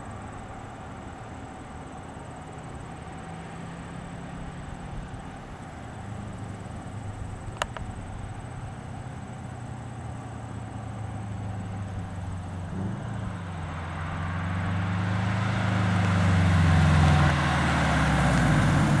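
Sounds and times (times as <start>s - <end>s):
car engine approaching: 0.0s - 19.0s.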